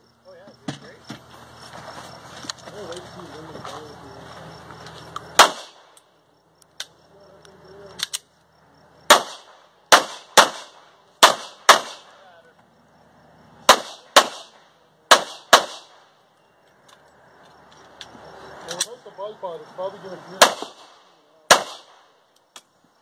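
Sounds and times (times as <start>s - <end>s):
faint distant gunshots: 5.4s - 6.0s, 9.0s - 12.3s, 13.6s - 16.2s, 20.3s - 22.2s
pistol shots: 5.4s - 6.0s, 9.1s - 12.2s, 13.6s - 16.1s, 20.4s - 22.2s.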